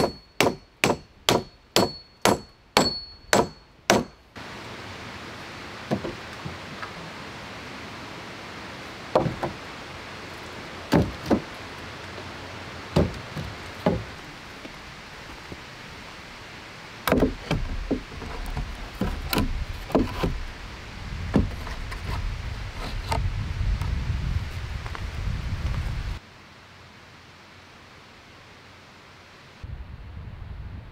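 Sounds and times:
log poles clattering: 0.0 - 4.2, 5.8 - 7.0, 9.1 - 9.7, 10.3 - 14.8, 17.0 - 20.5
wood knocking on wood: 5.9 - 6.6, 9.1 - 9.6, 10.9 - 11.5, 12.9 - 14.1, 17.1 - 20.4.

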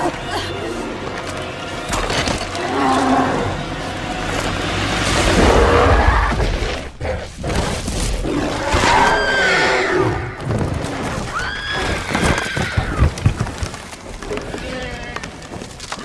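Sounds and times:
deep monster roar: 2.6 - 10.4.

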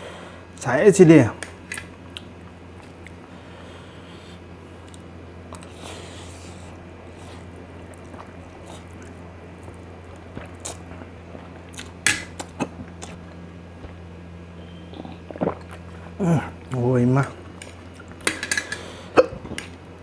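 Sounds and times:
low steady hum: 0.0 - 20.0
slurping and chewing noodles: 4.8 - 13.2, 15.0 - 15.9.

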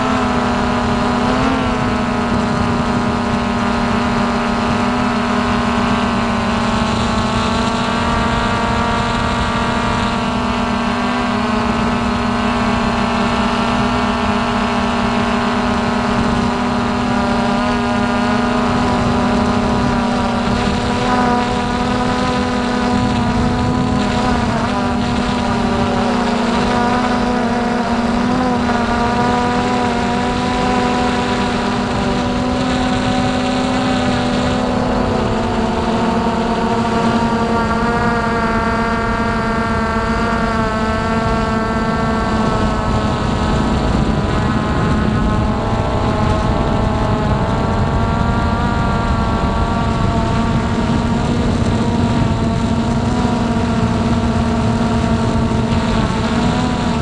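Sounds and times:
drone motors whining: 0.0 - 57.0.

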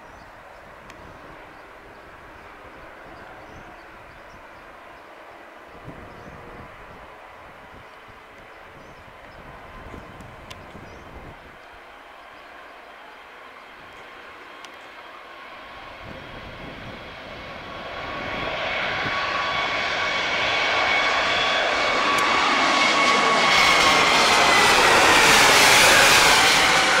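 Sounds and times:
high jet engine whine: 0.0 - 27.0
jet engines roaring: 9.5 - 27.0.

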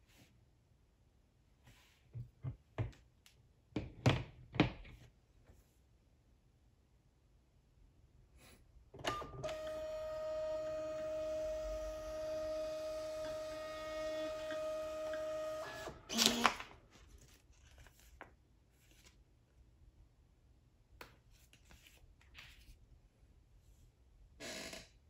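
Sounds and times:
printer motor whirring: 9.0 - 16.6
cutter snapping label: 16.1 - 16.6
paper rustling: 16.2 - 19.2, 21.2 - 22.8.

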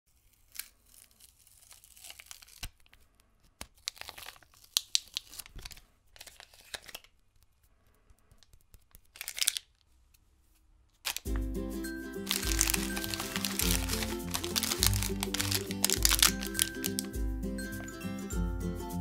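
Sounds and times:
foil wrappers crinkling: 0.1 - 3.0, 3.6 - 7.2, 8.4 - 9.8, 11.1 - 11.4, 12.2 - 17.2
paper rustling and tearing: 0.1 - 7.2, 8.3 - 9.8, 11.0 - 11.4, 12.2 - 17.2.

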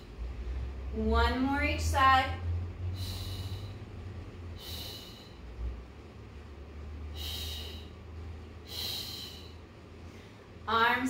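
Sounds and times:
steady low hum: 0.0 - 11.0
woman exhaling in hissing breaths: 4.6 - 5.5, 7.1 - 8.0, 8.6 - 9.6.

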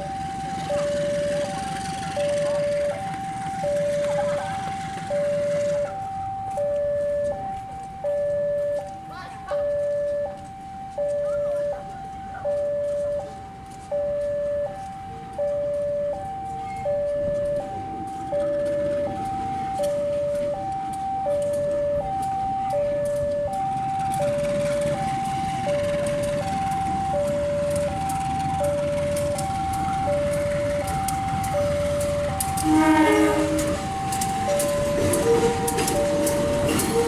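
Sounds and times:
level crossing alarm ding-dong: 0.0 - 37.0
train rumbling: 0.0 - 37.0
locomotive horn: 32.2 - 34.2.

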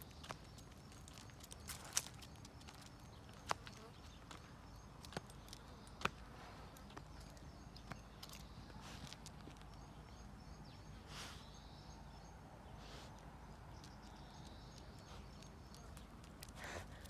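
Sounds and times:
dry leaves rustling: 0.0 - 3.5.

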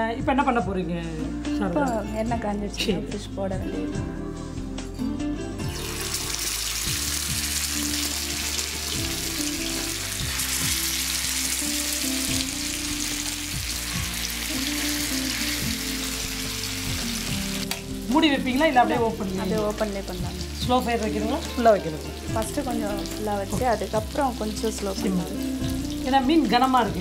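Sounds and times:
fish sizzling in oil: 5.6 - 27.0.

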